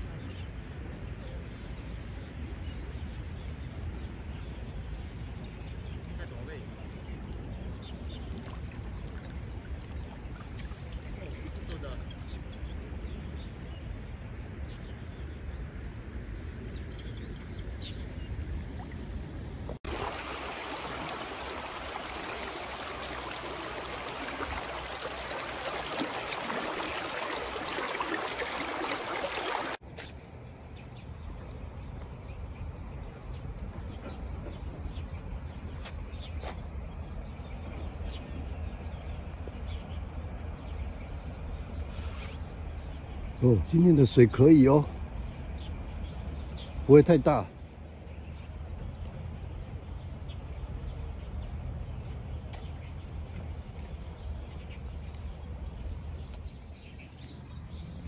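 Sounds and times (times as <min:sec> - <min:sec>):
creek water rushing over rocks: 0:19.9 - 0:29.8.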